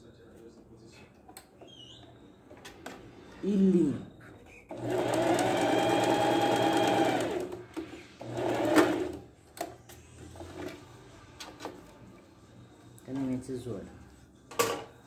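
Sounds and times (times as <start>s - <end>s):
sewing machine stitching: 4.7s - 7.6s, 8.2s - 9.2s.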